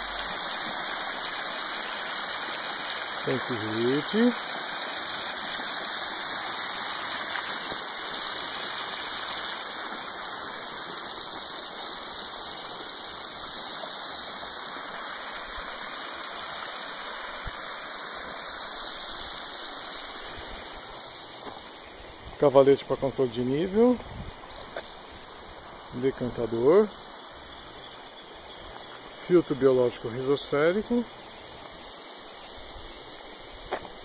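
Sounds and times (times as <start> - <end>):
water jets splashing into pond: 0.0 - 34.0.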